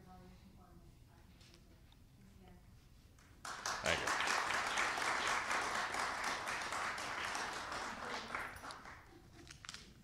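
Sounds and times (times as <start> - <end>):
audience applauding: 3.4 - 9.1.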